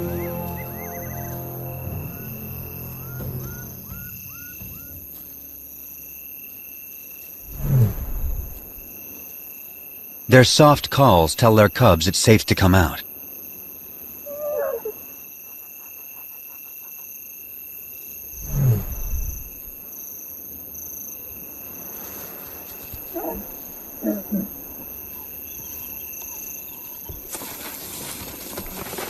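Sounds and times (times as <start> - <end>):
lioness low contact calls: 14.2 - 15.0, 22.9 - 27.2.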